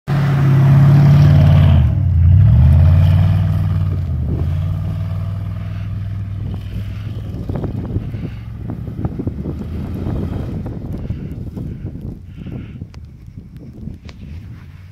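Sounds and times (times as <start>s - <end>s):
truck engine revving hard: 0.1s - 10.8s.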